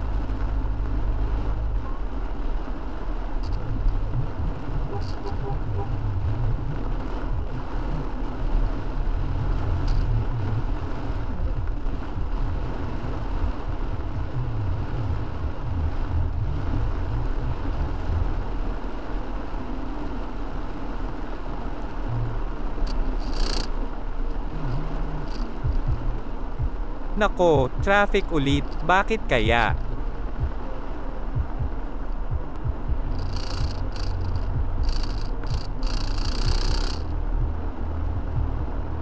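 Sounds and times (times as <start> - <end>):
car engine and tyres rumbling: 0.0 - 39.0
rain hiss: 6.1 - 31.0, 33.1 - 37.1.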